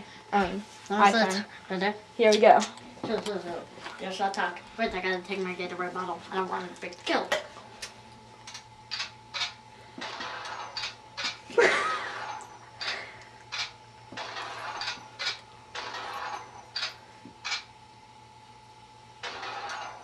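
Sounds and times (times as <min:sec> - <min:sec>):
shotgun sound effect shots: 0:10.0 - 0:10.6.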